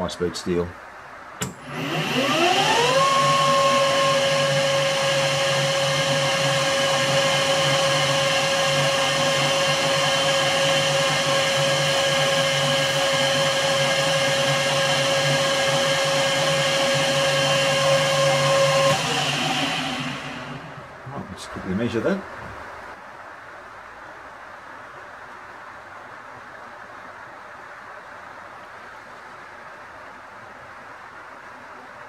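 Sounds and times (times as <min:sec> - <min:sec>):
lathe motor whine: 0:01.4 - 0:21.0.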